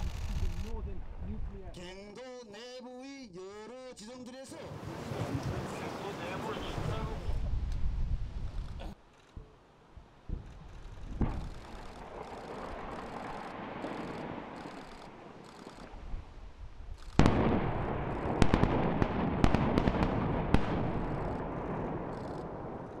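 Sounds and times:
sharp cracks: 10.3 - 16.1, 16.9 - 23.0
loud explosive blast: 17.2 - 22.8.

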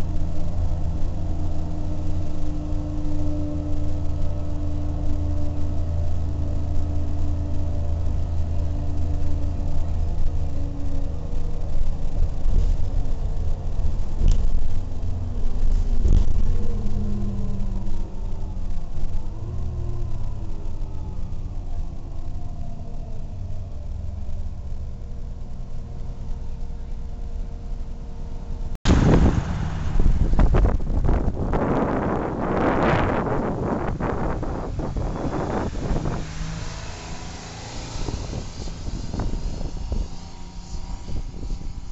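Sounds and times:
wind on microphone: 0.0 - 21.8, 28.9 - 41.9
diesel bus engine running: 0.0 - 41.9
low road rumble: 0.0 - 41.9.

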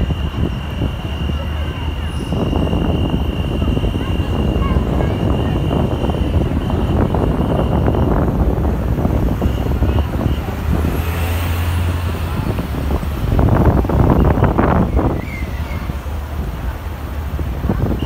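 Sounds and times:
cars and bus driving past: 0.0 - 18.0.

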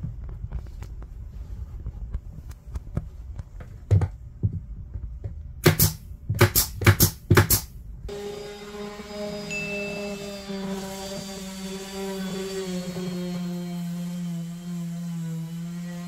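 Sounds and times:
nail gun firing: 5.6 - 7.8
background music with chimes: 9.5 - 10.4.

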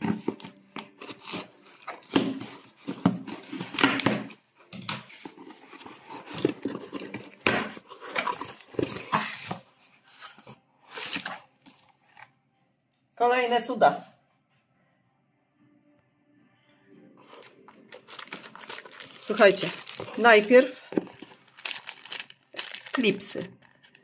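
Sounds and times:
cardboard scraping and rustling: 0.0 - 12.2, 17.2 - 23.4
scissors cutting packing tape: 0.1 - 9.5, 18.1 - 20.6.

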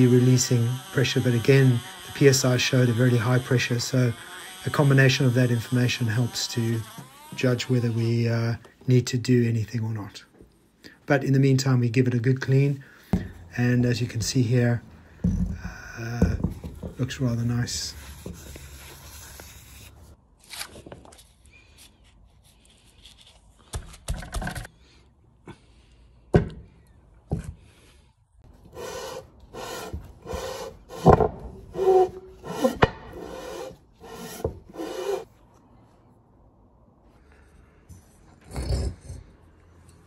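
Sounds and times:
metal casting rasping on sheet: 31.7 - 35.3.

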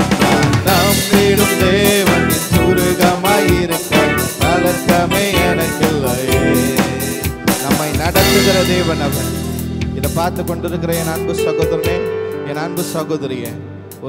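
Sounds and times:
steady drum beat: 0.0 - 12.1
man singing into a microphone: 0.0 - 13.6
electronic keyboards: 0.0 - 14.0.

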